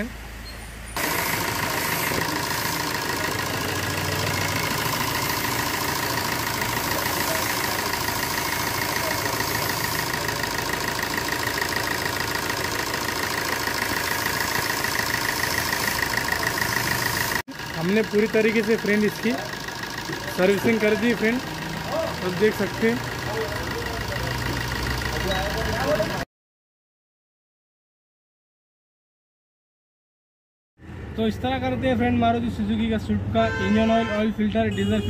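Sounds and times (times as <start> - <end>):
diesel engine idling: 0.0 - 26.3.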